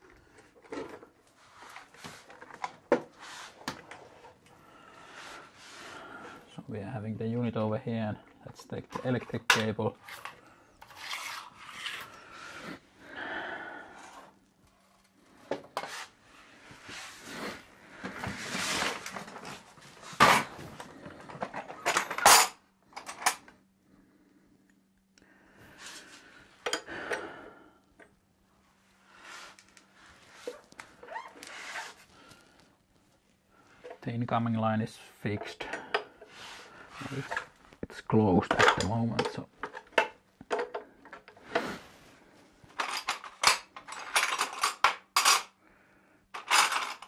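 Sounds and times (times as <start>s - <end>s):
metal parts clinking and knocking: 21.2s - 23.5s, 42.8s - 45.6s, 46.3s - 47.0s.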